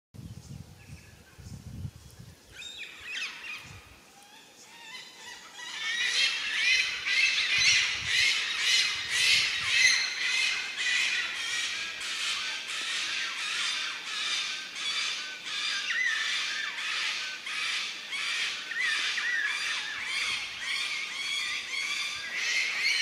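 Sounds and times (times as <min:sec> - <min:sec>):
flock of birds squawking: 0:04.8 - 0:23.0.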